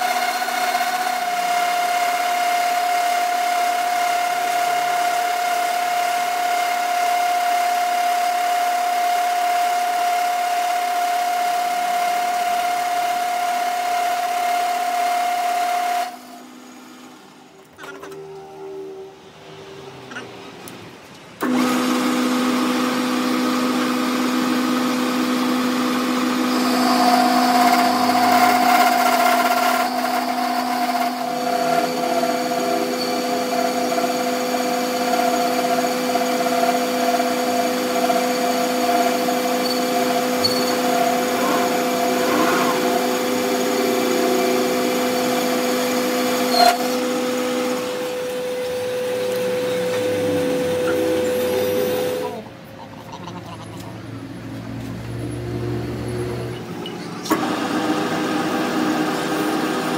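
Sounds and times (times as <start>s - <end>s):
high whine of cutting tool: 0.0s - 19.6s, 21.4s - 52.4s
metal lathe humming: 21.4s - 52.6s.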